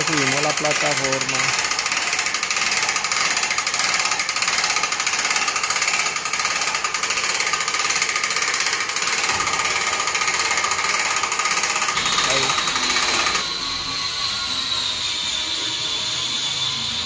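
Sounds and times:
electric hoist rattling: 0:00.0 - 0:17.0.

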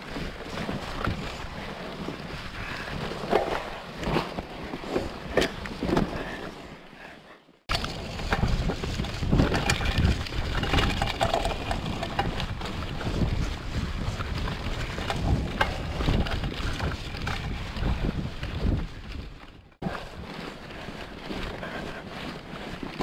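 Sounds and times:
bike knocks and rattles: 0:00.0 - 0:06.5, 0:07.7 - 0:23.0
bike tyre rumble: 0:00.0 - 0:23.0
wind on microphone: 0:07.7 - 0:22.7.

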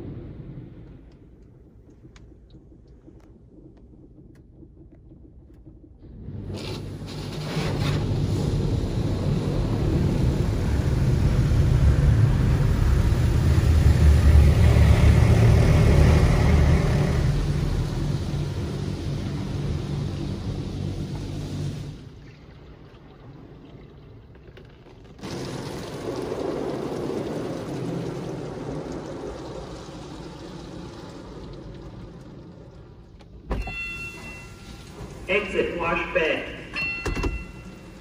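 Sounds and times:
car wash water spray on car: 0:06.4 - 0:35.5.

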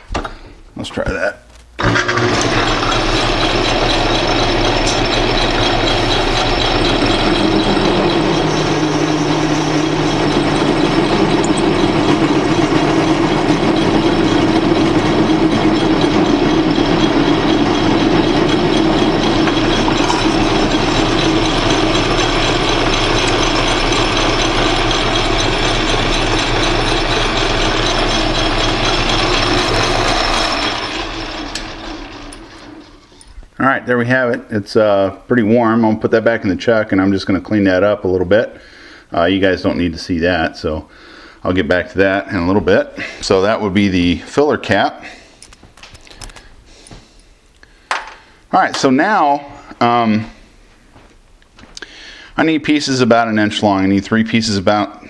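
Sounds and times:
lathe motor whirring: 0:01.8 - 0:33.3
parting tool cutting brass rod: 0:16.2 - 0:30.9.

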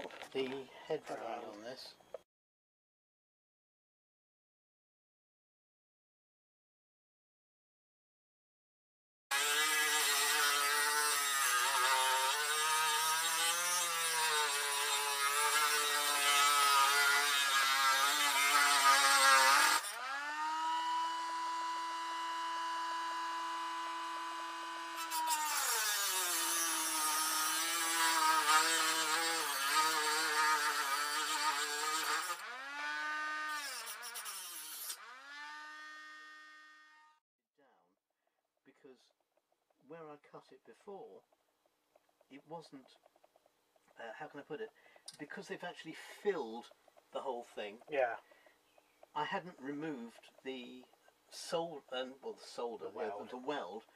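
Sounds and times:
rotary tool grinding metal: 0:09.3 - 0:37.2, 0:48.8 - 0:51.6.

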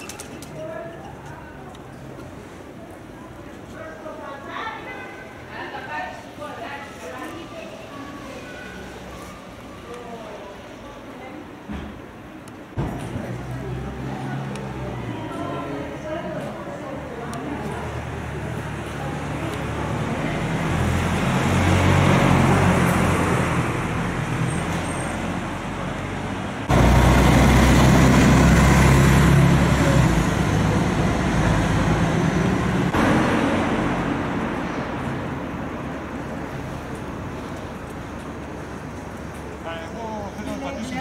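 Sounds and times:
vehicles passing close by: 0:12.6 - 0:41.0
heavy engine noise: 0:17.2 - 0:39.6.

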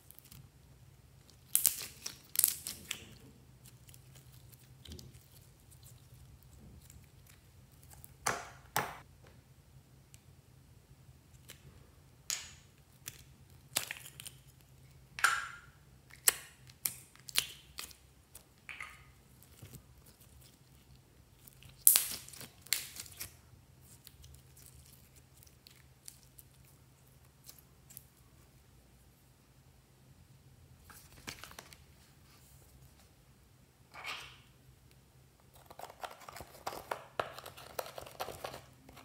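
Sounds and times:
sticky jelly crackles: 0:00.0 - 0:08.2, 0:16.1 - 0:28.2.

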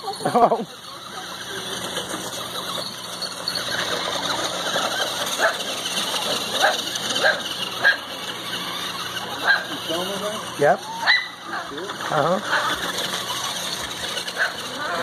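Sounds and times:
electric toy truck whining: 0:00.0 - 0:15.0.

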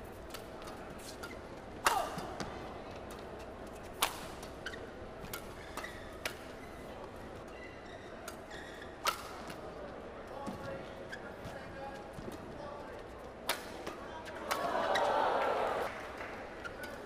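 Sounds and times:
rackets striking shuttlecock: 0:00.2 - 0:03.3, 0:05.2 - 0:06.6, 0:08.2 - 0:09.6, 0:13.4 - 0:15.0.

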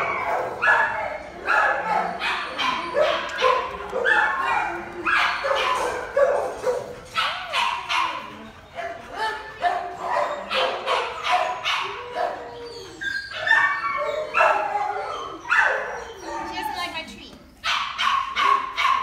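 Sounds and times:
dogs barking: 0:00.0 - 0:16.9, 0:17.6 - 0:19.0.

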